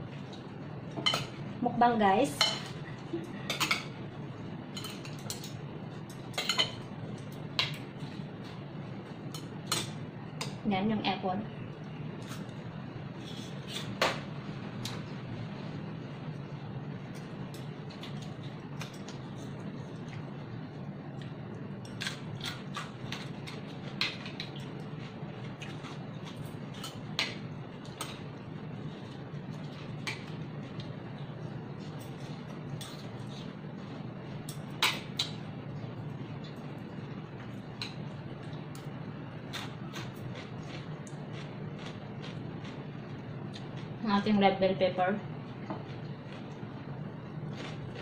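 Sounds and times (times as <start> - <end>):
low room hum: 0.0 - 48.0
cucumber chewing crunch: 39.5 - 42.8, 47.5 - 48.0.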